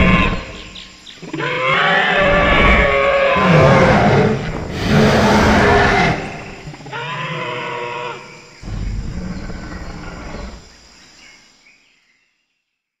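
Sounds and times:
dinosaur roars: 0.0 - 0.7, 1.3 - 10.7.

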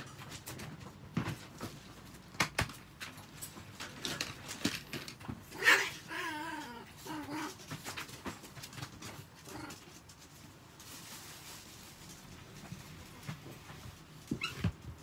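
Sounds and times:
dog whining: 5.5 - 7.6.

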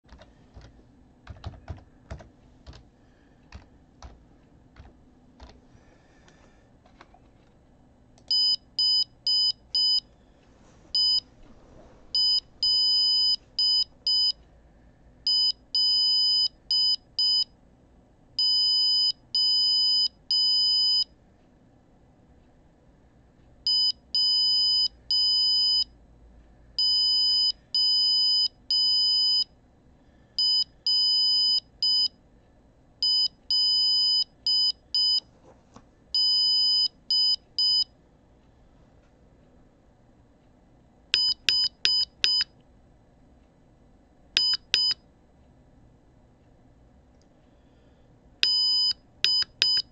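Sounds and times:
buzzer beeping morse code: 12.2 - 14.4, 15.3 - 17.5, 18.4 - 21.1, 23.7 - 25.9, 33.0 - 35.2, 36.2 - 37.9, 41.2 - 42.4, 48.4 - 49.9.

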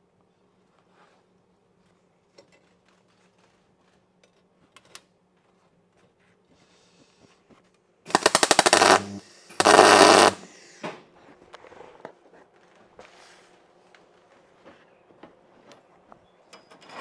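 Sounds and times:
arc welder crackling and buzzing: 8.1 - 10.6.

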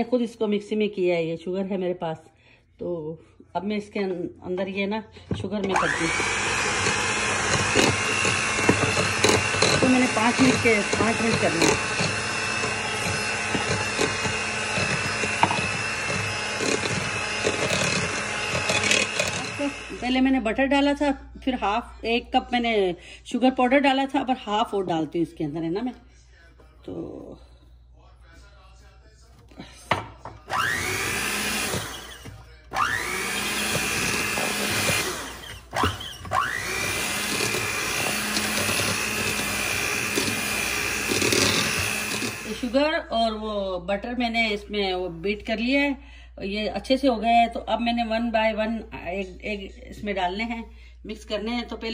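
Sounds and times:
electric mixer running: 5.6 - 20.4, 29.9 - 43.0.

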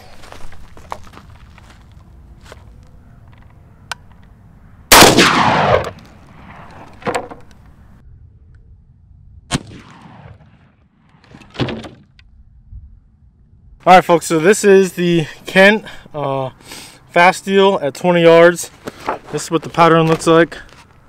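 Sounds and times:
shotgun shot with echo: 4.9 - 6.6, 9.5 - 10.8.

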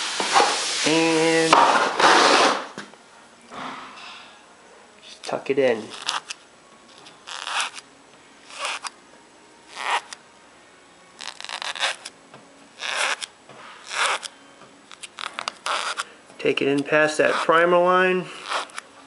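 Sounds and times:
masking tape pulled off roll: 5.1 - 7.8, 8.5 - 9.0, 9.7 - 10.2, 11.2 - 12.1, 12.8 - 14.3, 14.9 - 16.1, 18.4 - 18.9.

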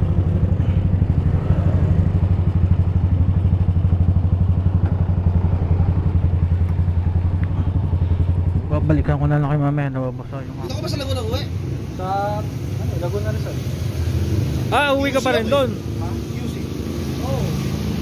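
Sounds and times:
motorcycle engine at low revs: 0.0 - 15.0.

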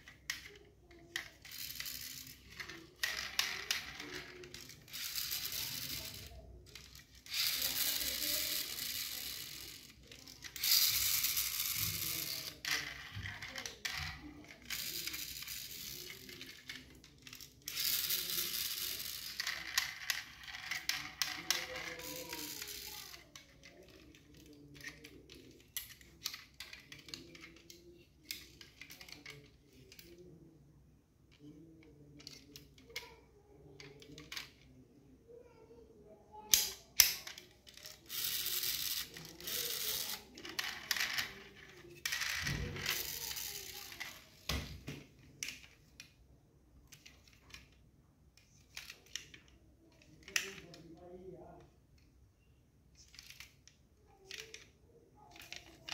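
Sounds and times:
hands rubbing and scraping toy: 0.0 - 30.3, 36.5 - 44.5.

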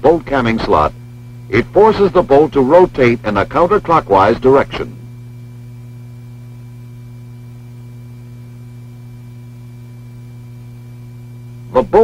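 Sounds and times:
low electrical hum: 0.0 - 12.0.

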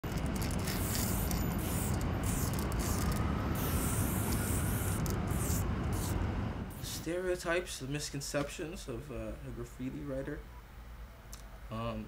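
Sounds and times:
spray-paint cans hissing: 0.1 - 7.0.

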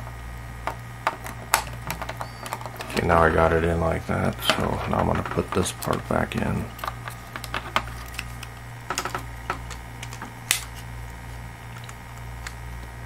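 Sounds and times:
steady low hum: 0.0 - 13.0
plastic panels clicking and tapping: 0.7 - 3.1, 4.4 - 10.6.

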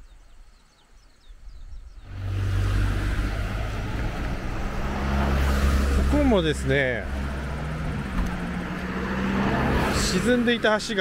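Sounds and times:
road noise: 1.9 - 11.0
car engine running: 2.1 - 10.7.

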